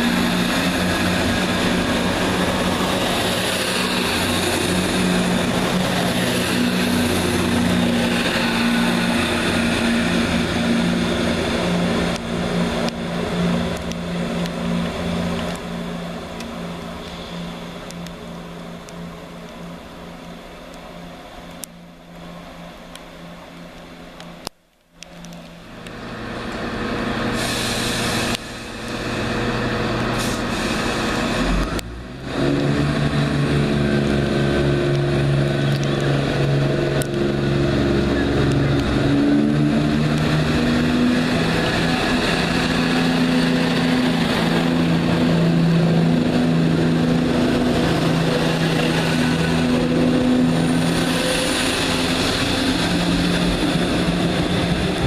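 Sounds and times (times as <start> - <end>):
diesel train engines running: 0.0 - 55.0.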